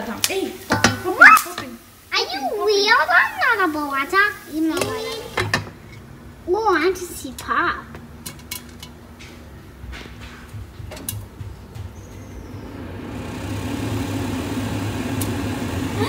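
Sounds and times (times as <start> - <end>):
oil sizzling: 0.0 - 9.6, 11.0 - 16.0
popcorn popping: 10.1 - 16.0.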